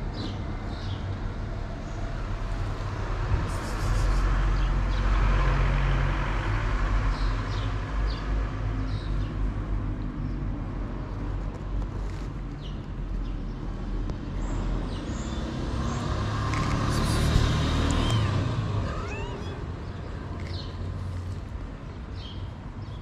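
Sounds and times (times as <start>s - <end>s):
traffic rumble: 0.0s - 23.0s
vehicle passing: 14.6s - 22.0s.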